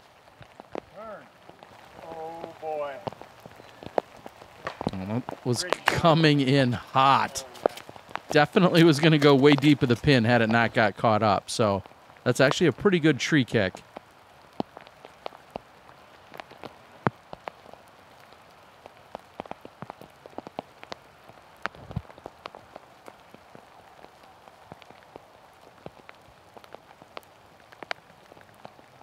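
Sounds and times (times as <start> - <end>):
light rain: 0.0 - 29.0
raindrops ticking: 0.0 - 29.0.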